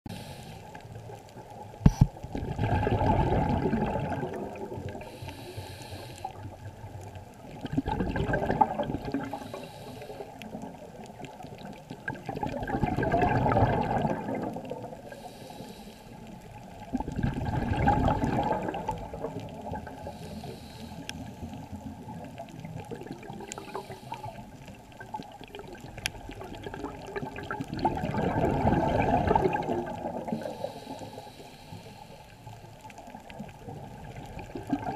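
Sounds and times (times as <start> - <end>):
low steady water noise: 0.0 - 34.9
underwater bubbles rushing: 0.1 - 34.9
sharp click: 1.9 - 2.2.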